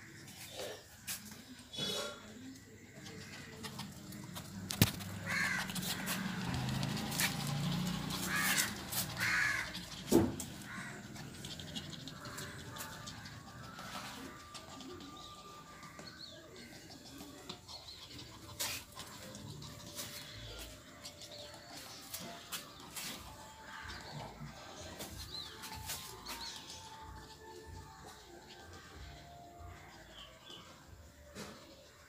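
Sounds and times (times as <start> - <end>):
crow cawing: 5.3 - 6.1, 8.3 - 9.8, 10.7 - 11.0.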